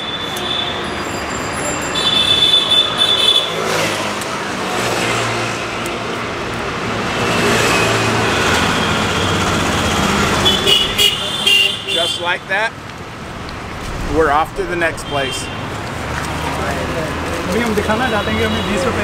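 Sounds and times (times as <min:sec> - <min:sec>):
road traffic noise: 0:00.0 - 0:19.0
passing vehicle engine: 0:13.0 - 0:17.9.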